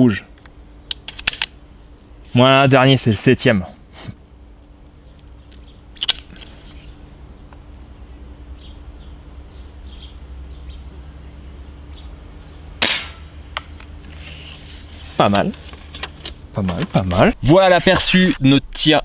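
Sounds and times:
air rifle shot crack: 12.8s - 13.3s
loud sharp noise: 12.8s - 13.4s.

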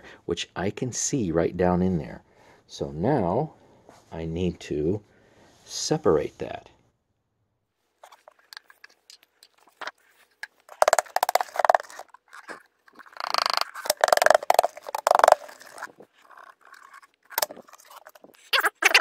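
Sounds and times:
scraping and rattling: 8.0s - 19.0s.

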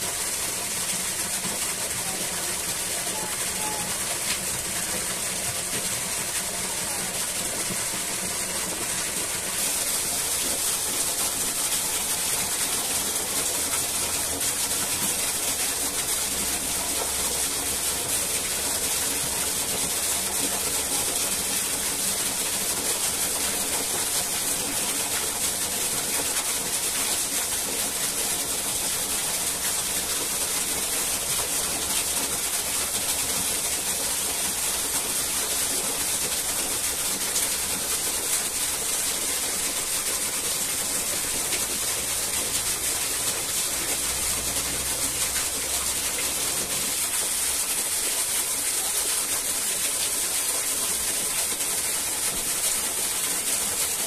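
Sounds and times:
waterfall rushing: 0.0s - 54.0s.

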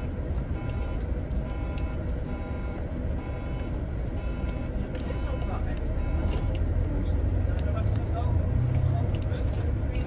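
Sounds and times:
faint steady tones: 0.0s - 6.8s
bus engine and road rumble: 0.0s - 10.0s.

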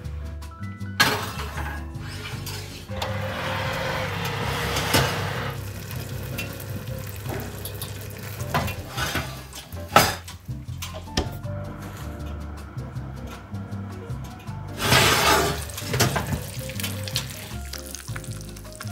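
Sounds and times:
oven door shutting: 1.0s - 5.6s, 14.2s - 16.4s
food sizzling in baking dish: 4.9s - 9.6s, 14.8s - 18.9s.

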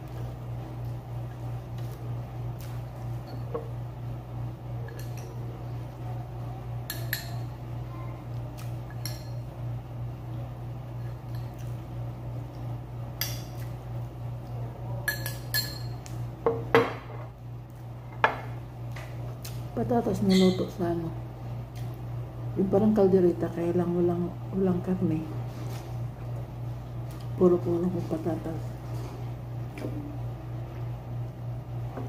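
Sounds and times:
steady low hum: 0.0s - 32.0s
metal spoon clinking on ceramic bowls: 4.9s - 5.4s, 6.9s - 7.5s, 8.9s - 9.4s, 15.0s - 16.0s.

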